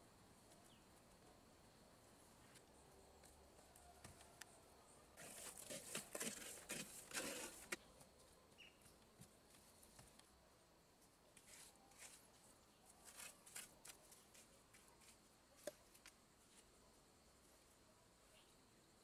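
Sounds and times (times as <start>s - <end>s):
mortar scraping and patting: 5.2s - 7.8s.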